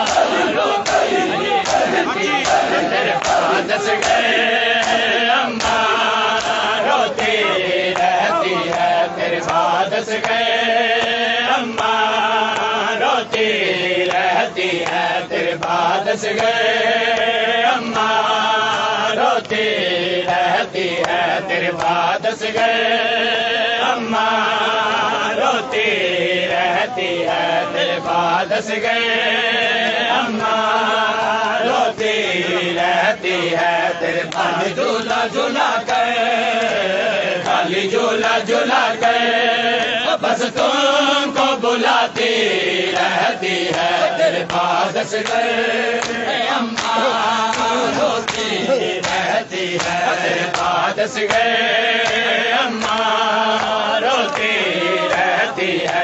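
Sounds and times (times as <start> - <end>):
hands slapping chests: 0.0 - 18.2, 21.8 - 22.7, 31.9 - 36.8, 37.4 - 38.5, 42.2 - 56.0
men chanting: 0.0 - 56.0.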